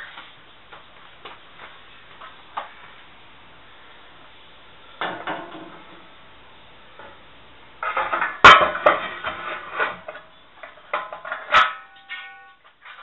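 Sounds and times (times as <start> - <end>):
metal parts clanking in tub: 7.8 - 13.0.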